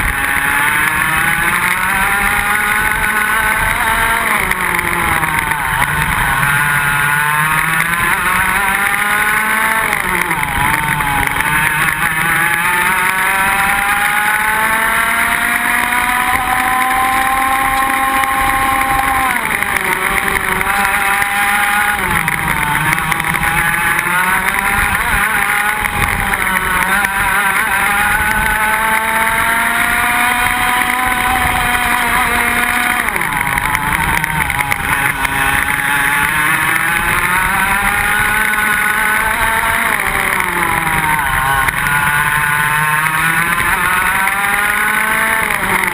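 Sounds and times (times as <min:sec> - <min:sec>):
kart engines racing: 0:00.0 - 0:45.9.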